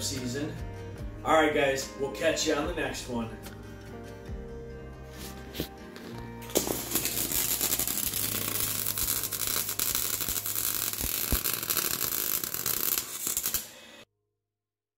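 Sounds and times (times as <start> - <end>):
arc welding crackling sizzle: 6.4 - 14.0.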